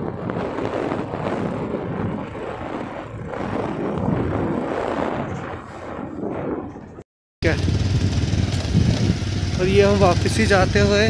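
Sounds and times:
wind rush on microphone: 0.0s - 11.0s
motorcycle engine running: 7.4s - 11.0s.

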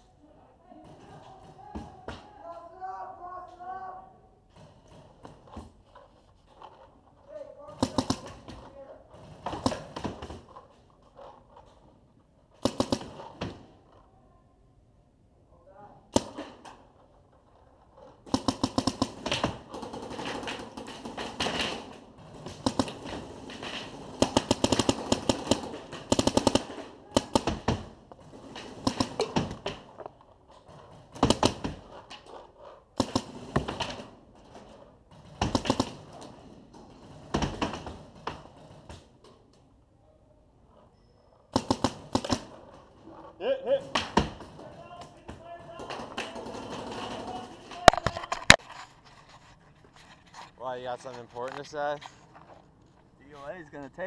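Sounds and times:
paintball markers firing: 7.7s - 8.7s, 12.6s - 13.7s, 16.1s - 16.8s, 18.2s - 28.0s, 28.6s - 30.1s, 31.2s - 32.4s, 33.0s - 34.0s, 35.4s - 36.3s, 41.5s - 42.8s.

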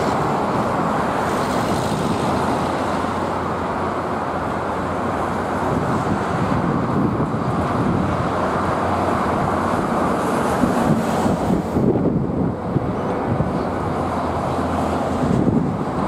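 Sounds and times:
diesel freight train: 0.0s - 16.0s
heavy road traffic rumble: 0.0s - 16.0s.

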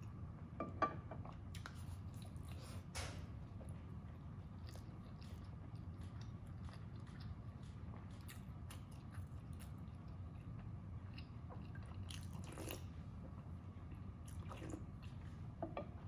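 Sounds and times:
low steady hum: 0.0s - 16.0s
mouth chewing food: 3.6s - 15.5s.

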